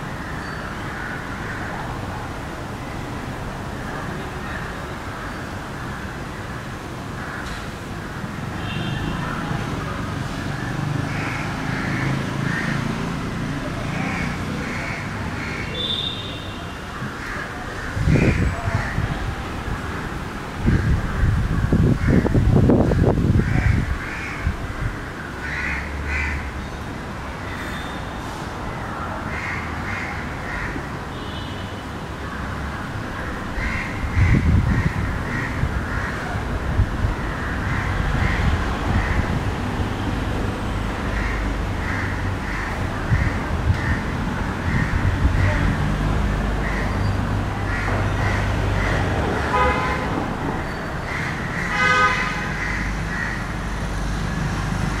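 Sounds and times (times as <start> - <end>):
road traffic rumbling: 0.0 - 55.0
crows cawing: 0.2 - 1.8, 9.2 - 19.2, 20.6 - 26.6, 29.2 - 31.4, 32.2 - 36.4, 37.2 - 39.4, 41.1 - 45.8, 46.5 - 55.0
vehicle horn toots: 15.8 - 16.7, 49.5 - 50.1, 51.7 - 52.5
wind rumble on microphone: 17.8 - 25.1, 33.0 - 46.7.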